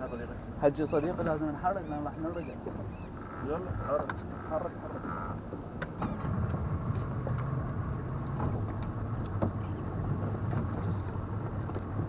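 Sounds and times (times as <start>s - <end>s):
outboard motor idling: 0.2s - 12.0s.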